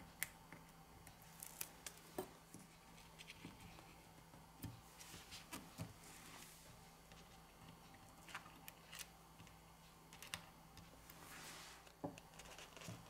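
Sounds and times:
soft rubbing: 4.8 - 7.4, 11.0 - 12.9
small parts clicking and tapping: 7.1 - 10.9.

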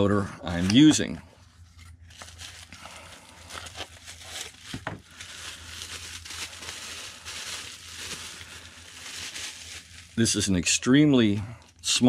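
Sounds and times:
bubble wrap crinkling and rustling: 0.5 - 12.0
packaging scrape: 2.0 - 10.2.

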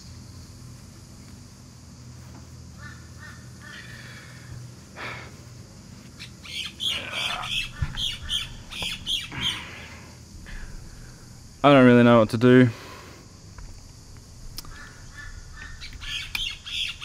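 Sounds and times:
faint low hum: 0.0 - 17.0
birds squawking: 2.8 - 4.5, 6.2 - 9.8, 14.6 - 17.0.

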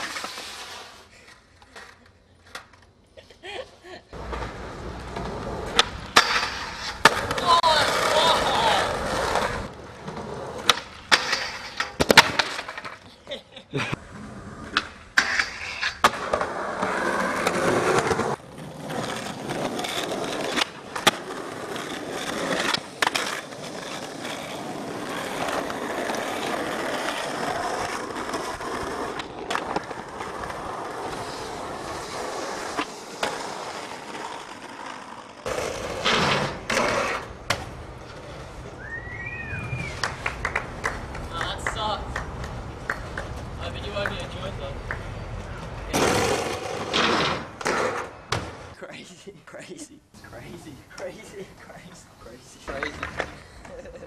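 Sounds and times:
skateboard wheels rolling on concrete: 0.0 - 54.0
skateboard clacks: 39.8 - 48.6, 52.7 - 54.0.

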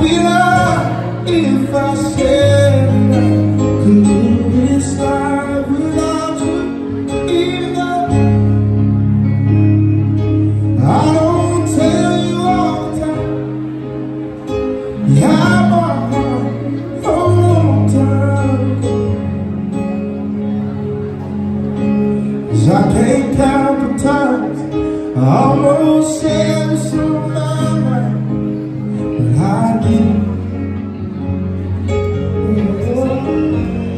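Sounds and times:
man singing: 0.0 - 8.7, 10.8 - 13.8, 14.9 - 19.3, 22.5 - 31.0, 32.2 - 33.9
live band playing slow song: 0.0 - 33.9
low bass notes: 0.0 - 33.9.

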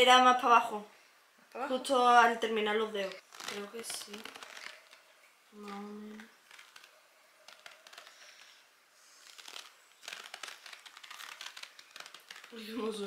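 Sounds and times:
elastic bandage crackling: 1.9 - 13.0.

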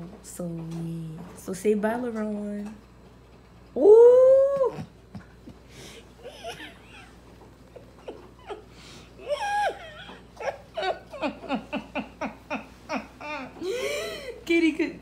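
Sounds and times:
person giggling and laughing: 4.6 - 14.4.

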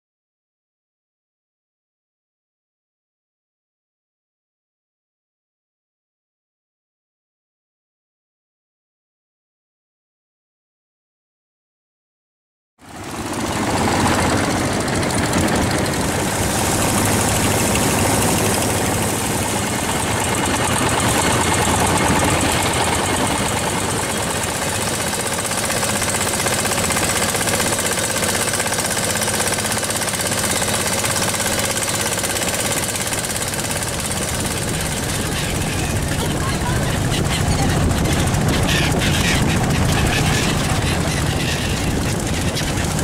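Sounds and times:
boat engine throbbing: 12.8 - 43.0
wind and spray hiss: 16.0 - 20.7.

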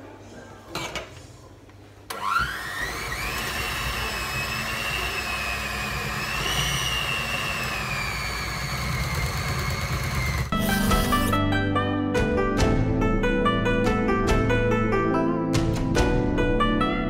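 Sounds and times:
electric hand mixer whine: 2.2 - 11.4.

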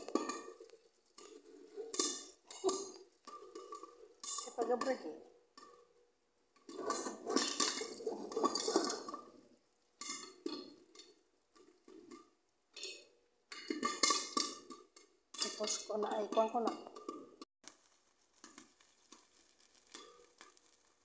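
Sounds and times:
popcorn popping against glass lid: 0.0 - 6.0, 10.0 - 21.0
oil sizzling: 13.5 - 21.0.

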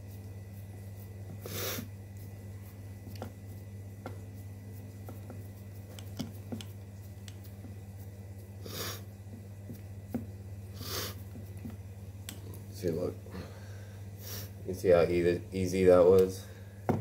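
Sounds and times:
steady low hum: 0.0 - 17.0
fingers pressing dough: 2.1 - 12.4
short breaths: 13.3 - 14.6.

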